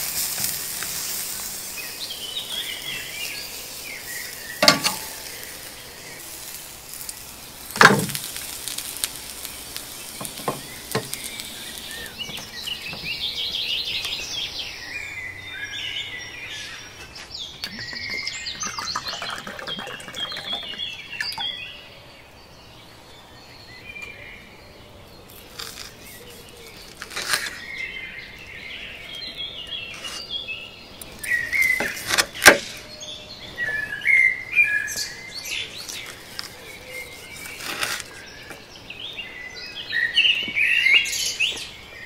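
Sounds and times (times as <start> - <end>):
grilled pork sizzling: 0.0 - 15.0, 25.2 - 30.2, 30.9 - 39.2
birds chirping: 0.0 - 42.0
water poured over ice cubes: 17.8 - 21.4.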